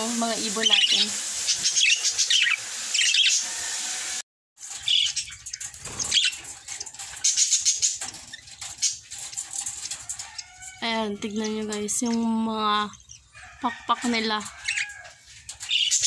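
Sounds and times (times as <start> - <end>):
budgerigars chirping: 0.6 - 3.5.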